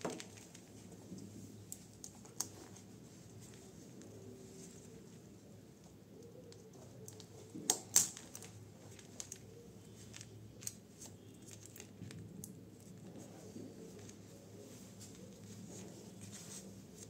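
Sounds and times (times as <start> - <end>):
faint clicks of handling parts: 5.8 - 17.0
sharp plastic snaps: 6.5 - 8.6.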